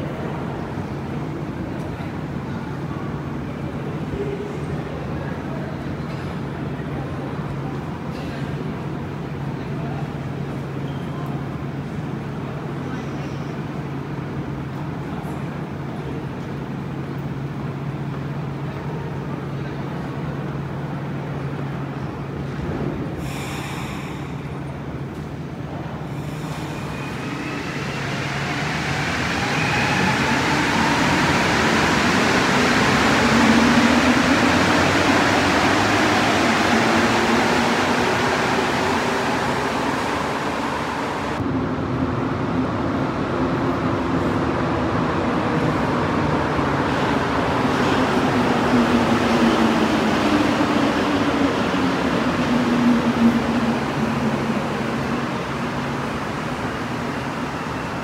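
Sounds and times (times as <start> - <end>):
train running noise: 21.6 - 58.0.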